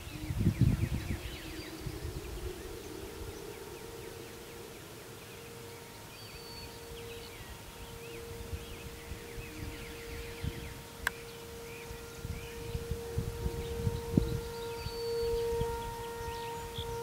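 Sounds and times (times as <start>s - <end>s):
birds chirping and trilling: 0.0s - 17.0s
distant warning siren: 0.0s - 17.0s.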